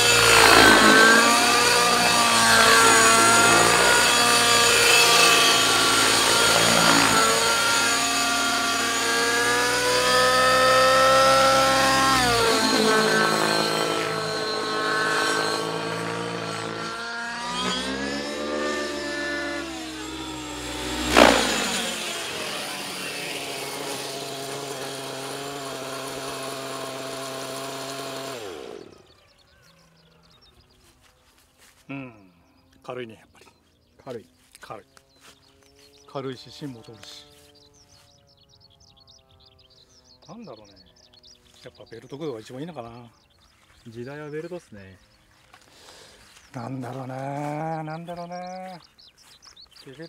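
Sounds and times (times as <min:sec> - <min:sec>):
loud engine burst: 0:00.0 - 0:25.5
model helicopter engine and rotor: 0:00.0 - 0:29.6, 0:34.2 - 0:50.0.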